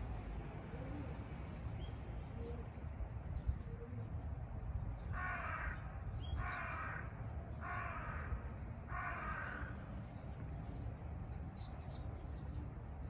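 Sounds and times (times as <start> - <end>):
crow cawing: 5.2 - 5.8, 6.4 - 9.8.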